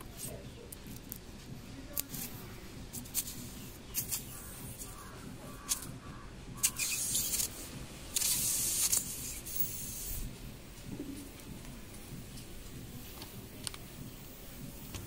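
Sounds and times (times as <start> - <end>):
reamer clicks and scrapes: 0.0 - 5.9, 6.6 - 10.3
air hissing from tyre: 2.1 - 5.0, 6.6 - 10.8.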